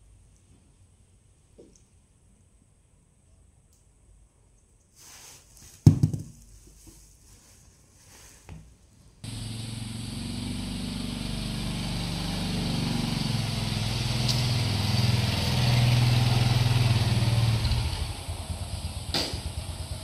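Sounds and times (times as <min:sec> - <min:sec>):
motorbike engine running: 0:09.2 - 0:20.0.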